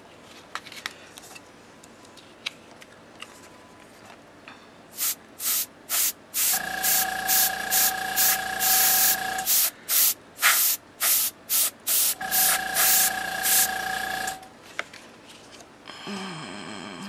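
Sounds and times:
airbrush spraying short hisses: 0:05.0 - 0:13.7
airbrush compressor humming: 0:05.4 - 0:14.4.

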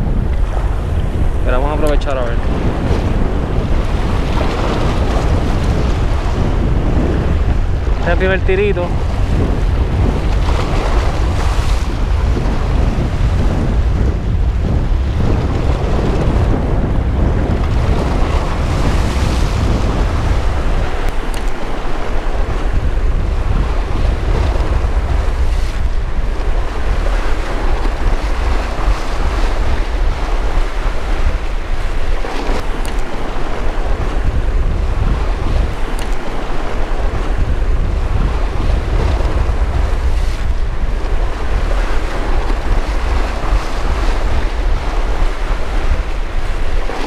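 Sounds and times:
surf washing against rocks: 0:00.0 - 0:47.0
wind buffeting microphone: 0:00.0 - 0:47.0.

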